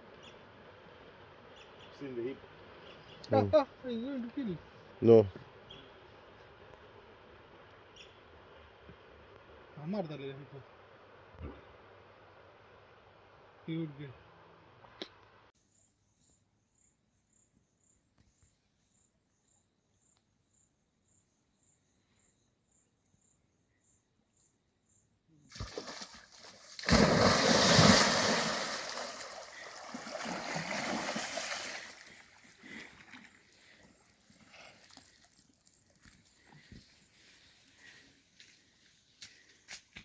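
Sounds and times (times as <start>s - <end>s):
heavy splashing in river water: 25.5s - 33.3s.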